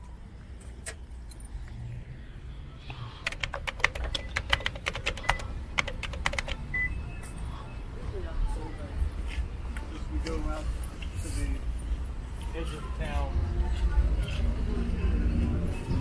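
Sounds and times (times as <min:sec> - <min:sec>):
rapid sharp clicks: 0:03.2 - 0:06.6.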